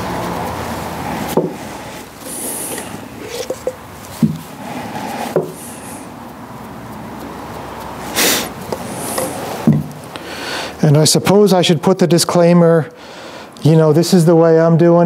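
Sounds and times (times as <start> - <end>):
rag rubbing steel: 0.0 - 6.2, 8.0 - 10.2
brush rubbing on metal: 0.1 - 6.2, 8.0 - 10.1
small knocks and clicks: 1.2 - 10.2.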